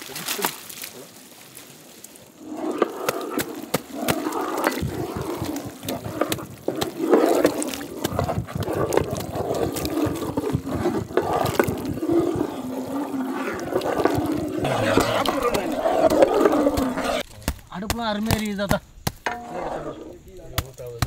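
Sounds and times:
curry gravy sloshing and squelching: 0:02.3 - 0:17.2.

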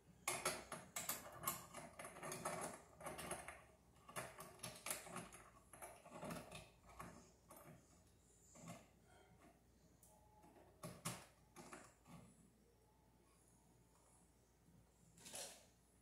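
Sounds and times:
metallic clicks and rattles: 0:00.2 - 0:07.9.

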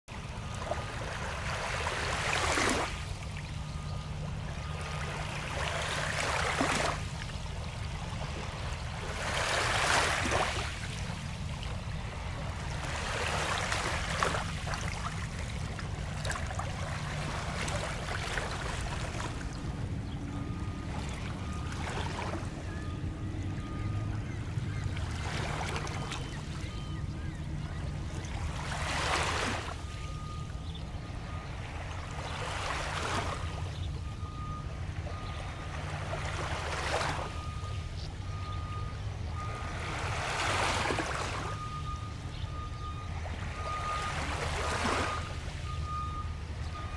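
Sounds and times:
waves lapping on pebble shore: 0:04.3 - 0:11.4, 0:12.2 - 0:19.6, 0:28.5 - 0:29.8, 0:43.4 - 0:45.6.

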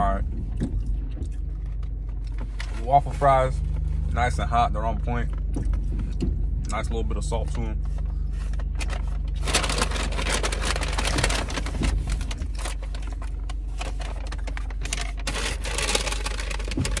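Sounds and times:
steady low hum: 0:00.0 - 0:17.0
paper bag crinkling: 0:08.8 - 0:17.0.

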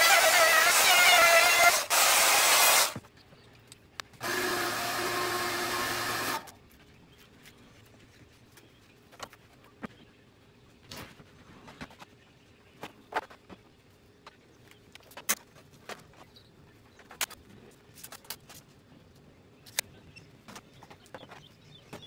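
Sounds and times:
router cutting plywood: 0:00.0 - 0:03.0, 0:04.2 - 0:06.5
steady motor hum: 0:04.2 - 0:08.0.

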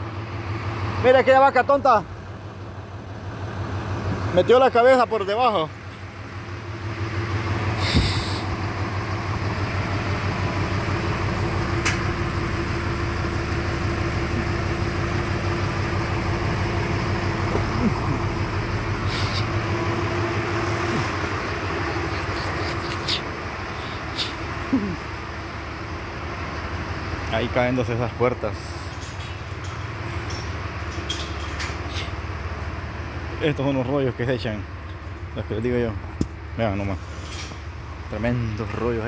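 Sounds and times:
tractor diesel engine running: 0:00.0 - 0:39.0
sharp knocks and rattles: 0:28.5 - 0:32.4.

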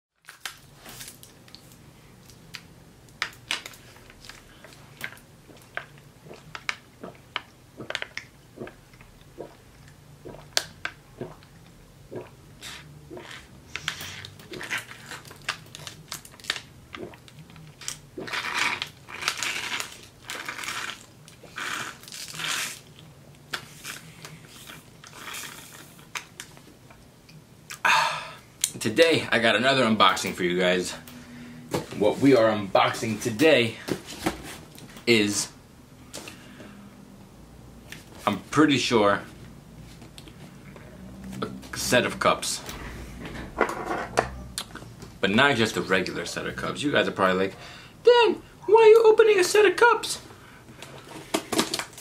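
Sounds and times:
foil wrapper crackling: 0:14.6 - 0:16.7, 0:17.8 - 0:23.0.

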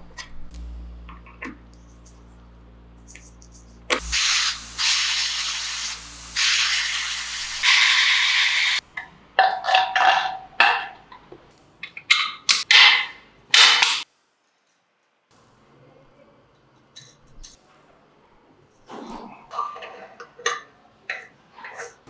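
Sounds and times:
compressed air hissing: 0:03.9 - 0:08.8.

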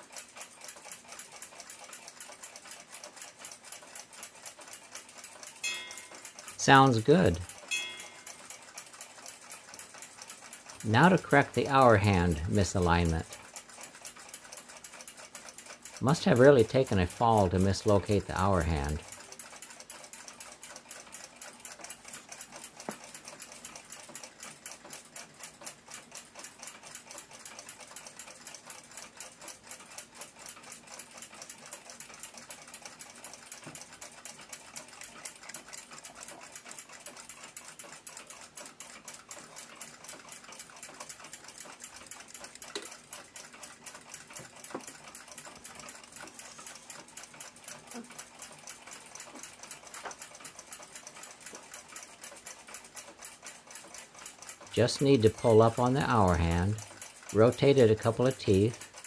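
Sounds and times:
clock ticking: 0:00.0 - 0:59.0
louder clock clicks: 0:02.9 - 0:12.3.

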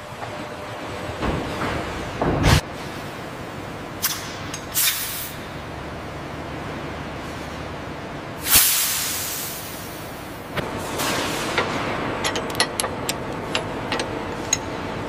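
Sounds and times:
low machine hum: 0:00.0 - 0:08.5, 0:09.1 - 0:15.0
sharp hissing bursts: 0:08.4 - 0:10.1.

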